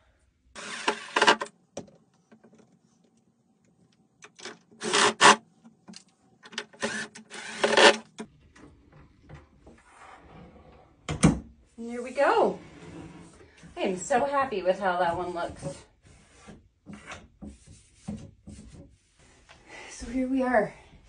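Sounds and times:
cordless drill driving screws: 0.6 - 1.4, 4.8 - 5.4, 6.7 - 8.0.

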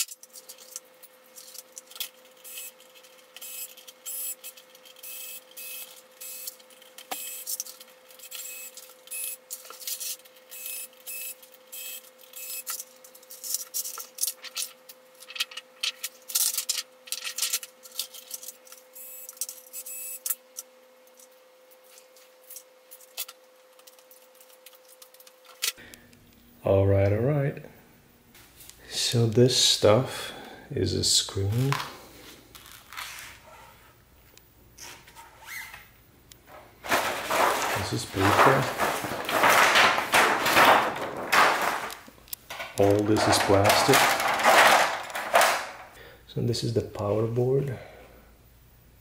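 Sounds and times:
faint hum: 0.0 - 49.0
plastic and metal parts clicking: 36.9 - 45.8.

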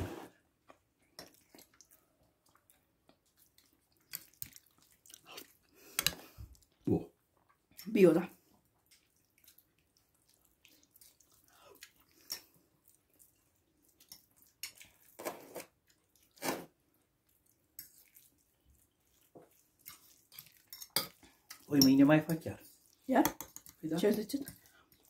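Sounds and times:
chewing: 0.6 - 7.9, 8.5 - 21.7, 22.6 - 25.0
spoon tapping a bowl: 23.2 - 23.8.

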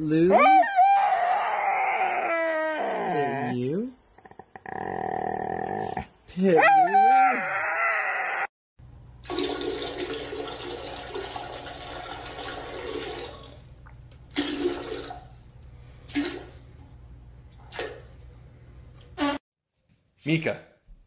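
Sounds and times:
toilet flushing: 9.2 - 16.8.

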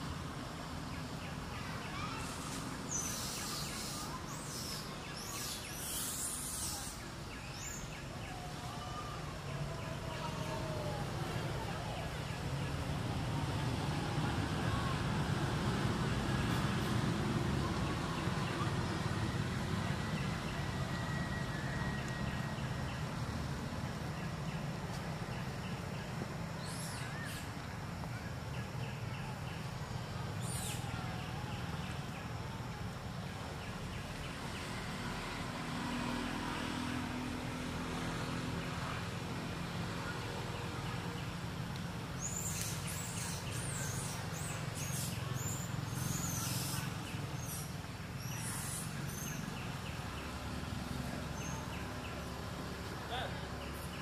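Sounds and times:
bird chirping: 0.9 - 8.4, 42.2 - 50.4.

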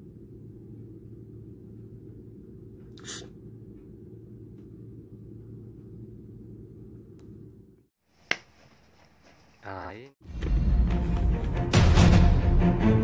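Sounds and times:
low background hum: 0.0 - 10.1.

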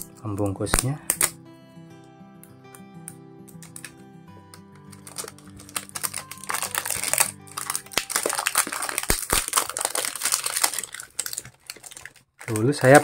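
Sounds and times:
soft background music: 0.0 - 13.0
plastic wrapping crinkling: 3.5 - 13.0.

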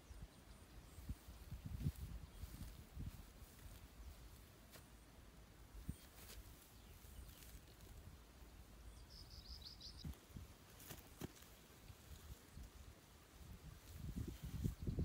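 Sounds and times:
soft knocks and rustles of sods: 1.0 - 8.8, 10.0 - 15.0
small bird chirping: 5.8 - 10.2.

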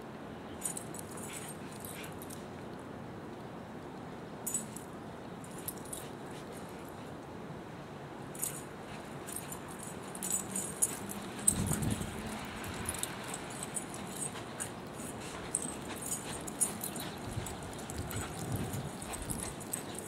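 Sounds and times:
metal collar tags jingling: 0.6 - 2.4, 4.5 - 6.9, 8.3 - 20.0.

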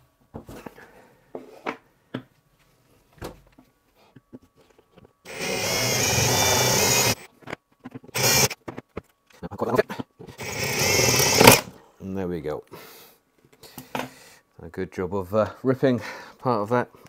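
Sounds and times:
cordless drill whining: 5.3 - 7.3, 8.1 - 8.6, 10.4 - 11.7.

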